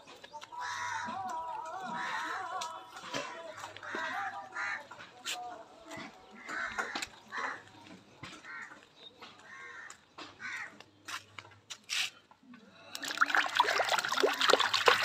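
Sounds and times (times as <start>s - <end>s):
water splashing and dripping: 12.9s - 15.0s.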